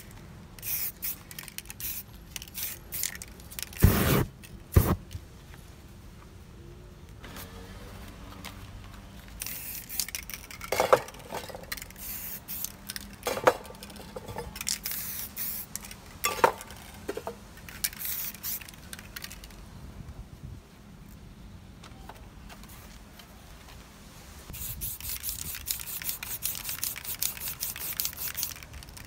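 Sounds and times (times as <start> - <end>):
spray-paint can hissing: 0.6 - 5.0, 9.4 - 10.4, 11.7 - 13.5, 14.6 - 16.0, 17.8 - 19.4, 24.5 - 29.0.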